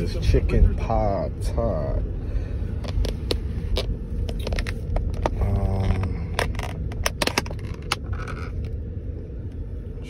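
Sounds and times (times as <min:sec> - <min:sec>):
car cabin rumble: 0:00.0 - 0:10.0
plastic lid crackling and snapping: 0:06.0 - 0:08.6.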